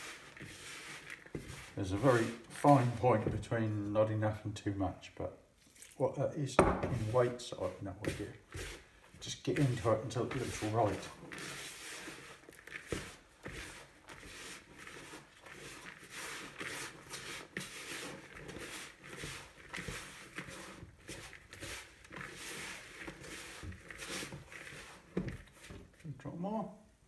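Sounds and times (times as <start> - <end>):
hands kneading dough: 0.0 - 4.0, 5.7 - 26.5
soft knocks against plastic bowl: 6.6 - 7.0.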